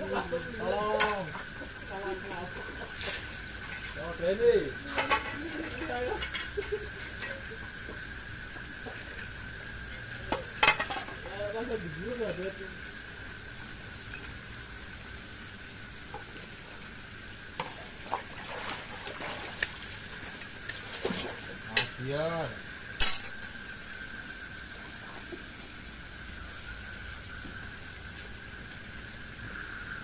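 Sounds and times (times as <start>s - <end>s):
steady high hum: 0.0s - 30.0s
fish splashing in water: 16.8s - 21.7s.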